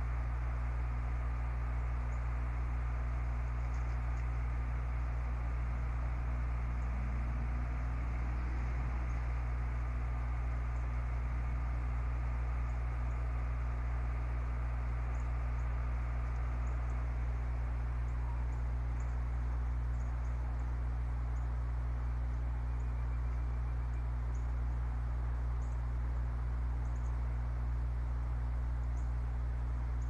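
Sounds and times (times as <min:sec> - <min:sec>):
low electrical hum: 0:00.0 - 0:30.0
microphone hiss: 0:01.5 - 0:18.5
faint high ticks: 0:03.6 - 0:04.4.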